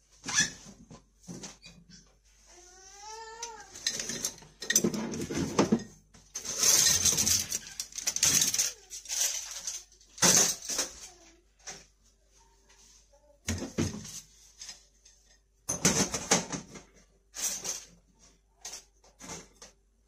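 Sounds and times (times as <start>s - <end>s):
utensils clattering in plastic caddy: 3.7s - 11.8s, 15.7s - 18.0s.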